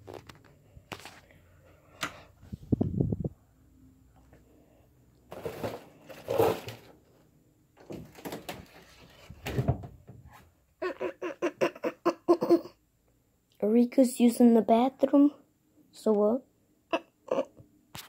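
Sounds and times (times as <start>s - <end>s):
cardboard and paper rustling: 5.3s - 7.1s, 7.8s - 9.8s.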